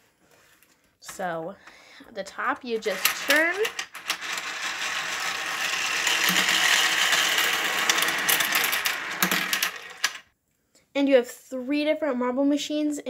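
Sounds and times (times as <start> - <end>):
marble machine clicking and rattling: 2.4 - 10.3.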